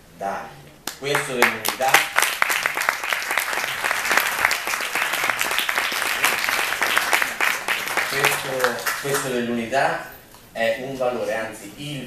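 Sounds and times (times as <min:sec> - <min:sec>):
audience applauding: 0:00.9 - 0:09.4.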